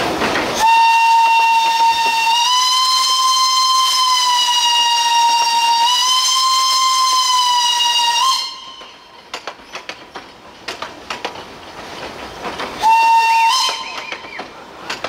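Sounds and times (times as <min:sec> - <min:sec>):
train clanks and knocks: 0:00.0 - 0:15.0
steam locomotive whistle: 0:00.6 - 0:09.1, 0:12.8 - 0:14.4.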